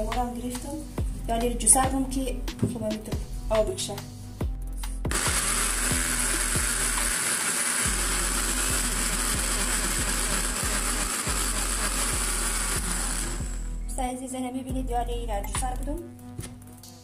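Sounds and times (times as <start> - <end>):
electric juicer motor whining: 5.1 - 13.8.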